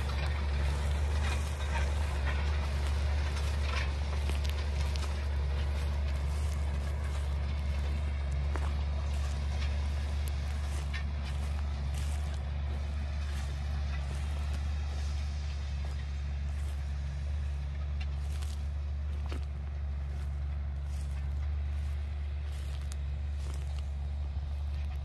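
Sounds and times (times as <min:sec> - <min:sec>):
distant tractor engine drone: 0:00.0 - 0:25.0.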